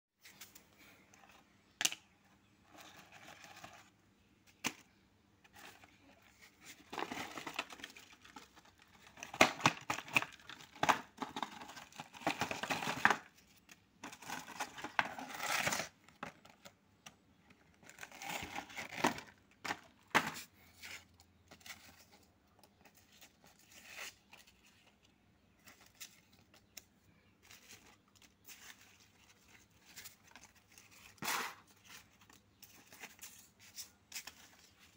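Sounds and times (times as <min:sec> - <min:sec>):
paper rustling and crinkling: 0:05.4 - 0:16.8, 0:25.6 - 0:34.9.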